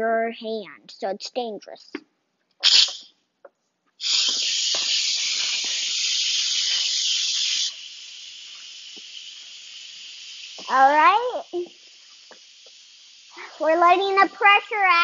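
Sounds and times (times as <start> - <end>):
pressure cooker venting steam: 2.6 - 3.0, 4.0 - 15.0.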